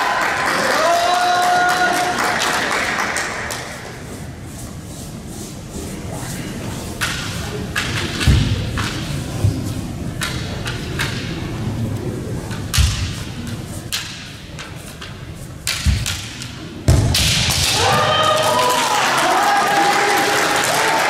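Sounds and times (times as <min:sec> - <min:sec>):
people shouting: 0:17.6 - 0:21.0.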